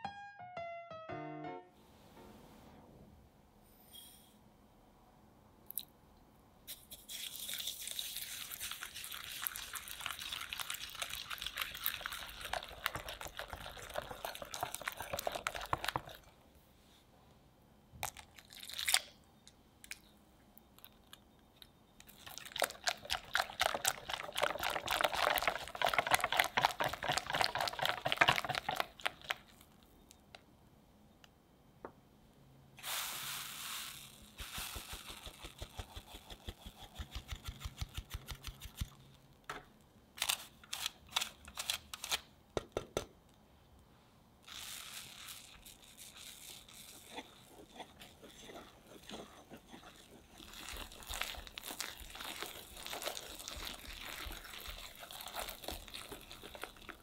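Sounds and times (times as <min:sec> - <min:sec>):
flour sifted through sieve: 0:32.8 - 0:38.8, 0:44.5 - 0:57.0.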